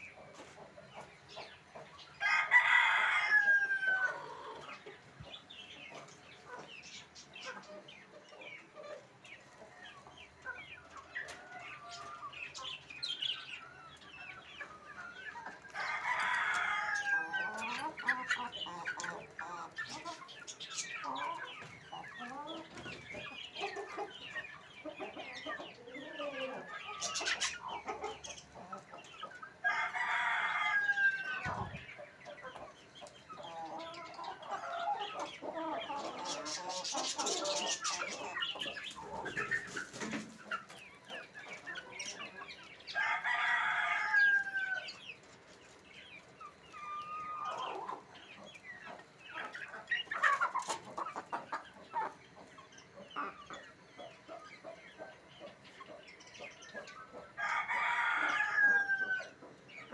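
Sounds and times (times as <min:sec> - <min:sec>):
chickens clucking: 0:00.0 - 0:59.9
rooster crowing: 0:02.2 - 0:04.4, 0:29.6 - 0:31.6, 0:43.0 - 0:44.8, 0:57.4 - 0:59.4.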